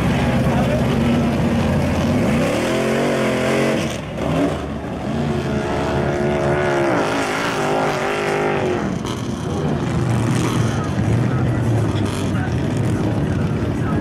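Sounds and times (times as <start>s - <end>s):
truck engines revving hard: 0.0s - 14.0s.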